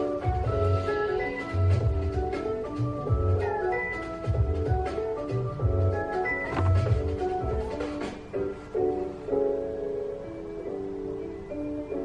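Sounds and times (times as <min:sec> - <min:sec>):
music with bass and light percussion: 0:00.0 - 0:09.1.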